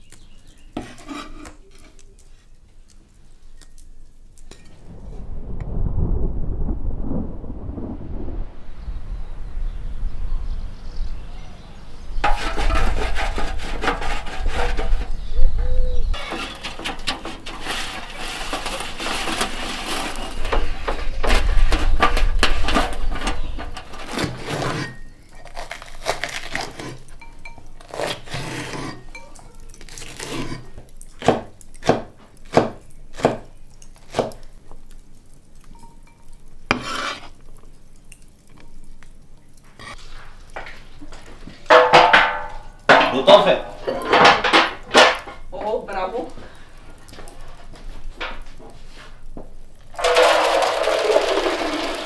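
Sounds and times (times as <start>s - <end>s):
dishes and cutlery clattering: 41.7s - 45.5s.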